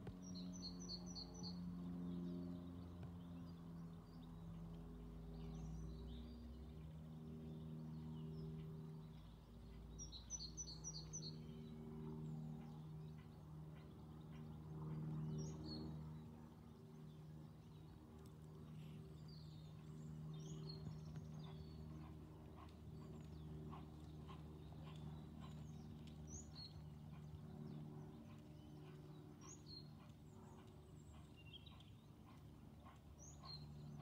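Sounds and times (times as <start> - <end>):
steady low hum: 0.0 - 34.0
horse hoofbeats trotting: 17.0 - 34.0.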